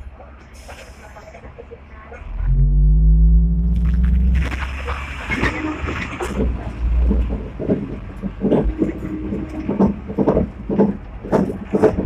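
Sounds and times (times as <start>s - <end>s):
tram rumbling on rails: 0.0s - 12.0s
car body rattling: 4.4s - 12.0s
wheels knocking on track: 4.6s - 12.0s.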